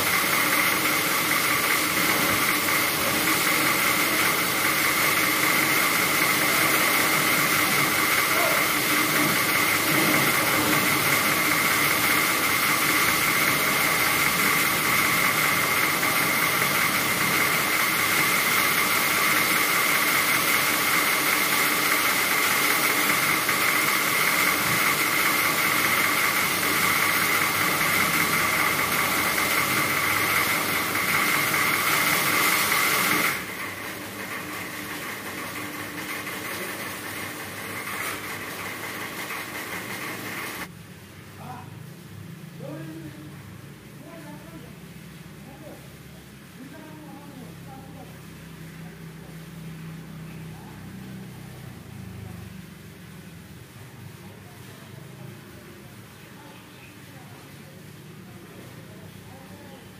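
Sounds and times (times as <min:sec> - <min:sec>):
motor-driven machine whining: 0:00.0 - 0:40.7.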